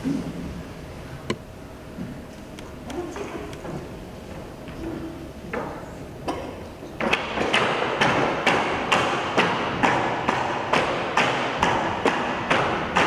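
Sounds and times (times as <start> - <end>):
bamboo poles knocking: 7.0 - 13.0.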